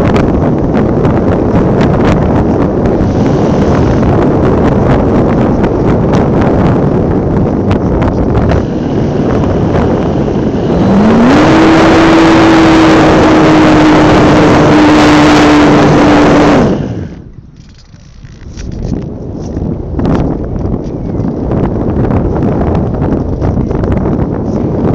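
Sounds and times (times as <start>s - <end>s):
rush of wind: 0.0s - 24.9s
model airplane motor: 8.4s - 18.7s.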